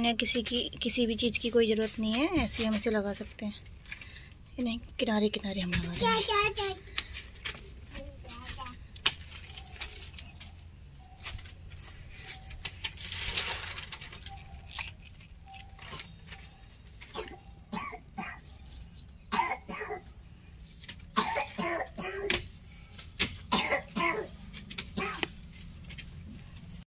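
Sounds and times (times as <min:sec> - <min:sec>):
soil and plastic rustling: 0:00.1 - 0:04.4, 0:05.4 - 0:17.5
person coughing: 0:21.2 - 0:22.4, 0:23.5 - 0:24.3.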